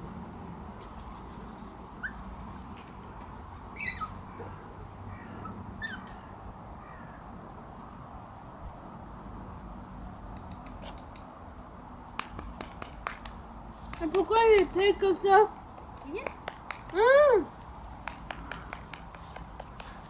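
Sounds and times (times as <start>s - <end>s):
low background noise: 0.0s - 20.0s
puppies whimpering: 3.6s - 6.4s.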